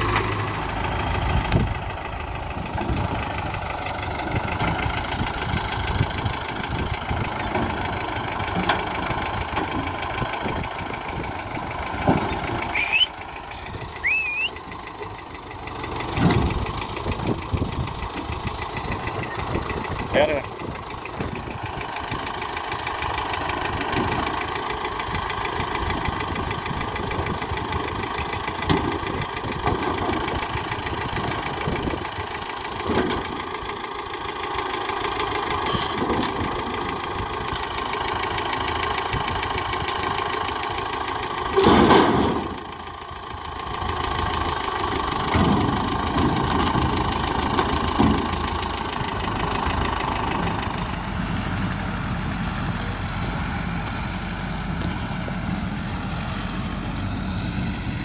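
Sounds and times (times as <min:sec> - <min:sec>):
tractor engine running: 0:00.0 - 0:58.0
loud clatter: 0:41.4 - 0:42.8.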